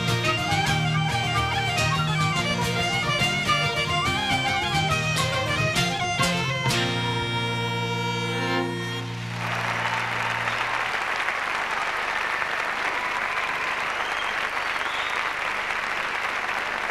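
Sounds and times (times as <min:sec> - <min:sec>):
audience applause: 0:08.7 - 0:16.9.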